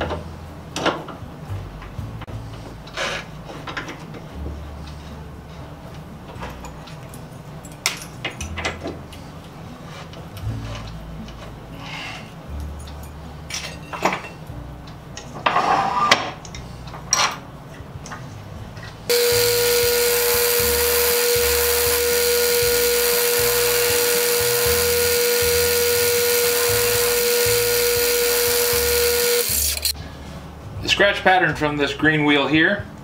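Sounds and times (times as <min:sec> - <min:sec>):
bench buffer whining: 0:19.1 - 0:30.0.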